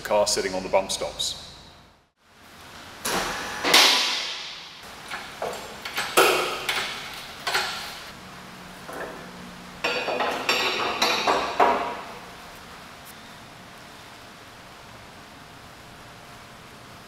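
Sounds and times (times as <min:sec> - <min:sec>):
metal clanks and knocks: 0:03.1 - 0:07.9, 0:09.8 - 0:12.1.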